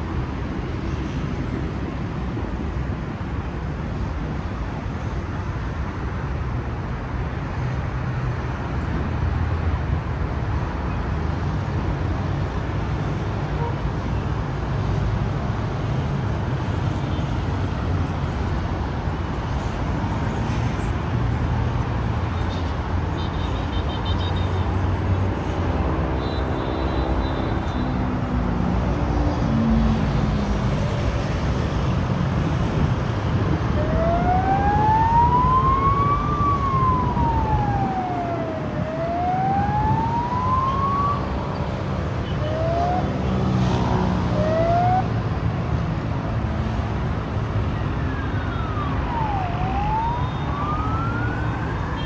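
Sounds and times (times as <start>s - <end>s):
city traffic noise: 0.0s - 52.0s
emergency vehicle siren: 22.4s - 31.8s, 32.4s - 45.4s, 47.6s - 52.0s.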